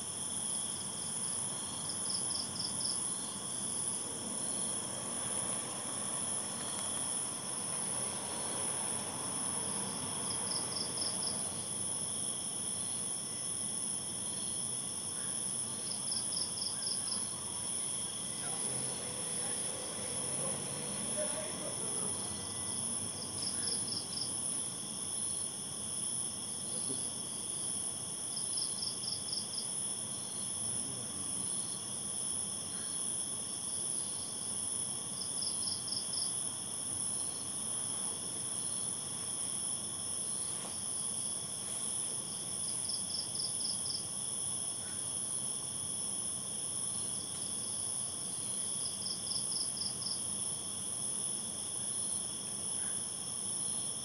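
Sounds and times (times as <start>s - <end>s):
insect trill: 0.0s - 54.0s.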